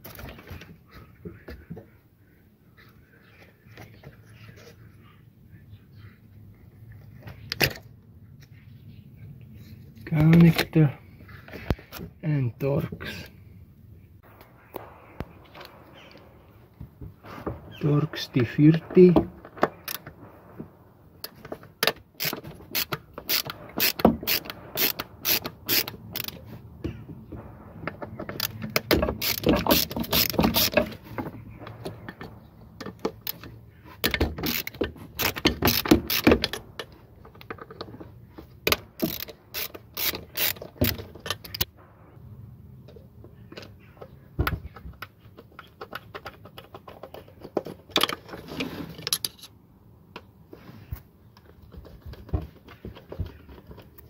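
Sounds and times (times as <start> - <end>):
ratchet driver clicking: 22.2 - 26.4, 29.2 - 30.8, 34.0 - 36.6, 38.7 - 41.7.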